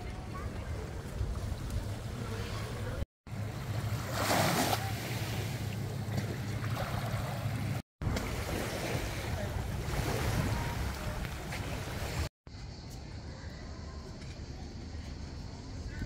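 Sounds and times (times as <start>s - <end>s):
wind rumble on microphone: 0.0s - 3.0s, 7.2s - 12.3s
small waves lapping on shore: 0.4s - 12.3s.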